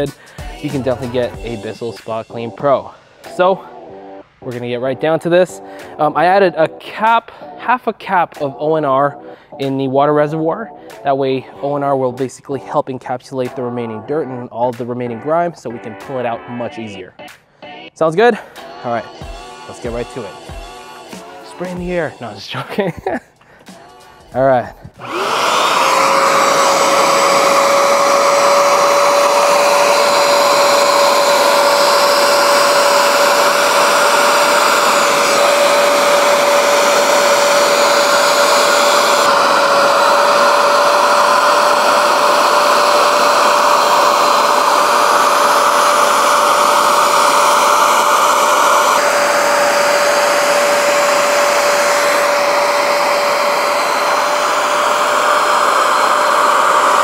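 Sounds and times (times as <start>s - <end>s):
carpet cleaner motor whine: 18.7s - 22.9s, 25.0s - 57.0s
suction hiss: 23.7s - 57.0s.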